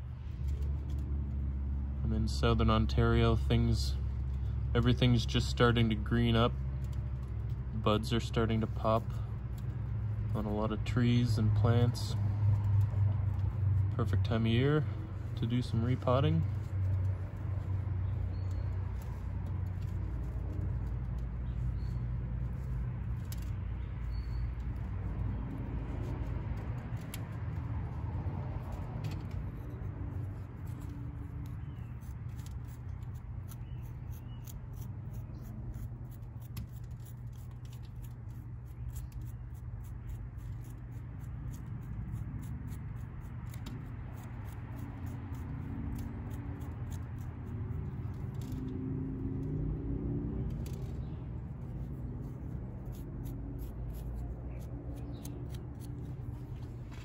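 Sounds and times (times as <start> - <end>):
tool scratching soil: 2.1 - 48.7, 50.4 - 57.0.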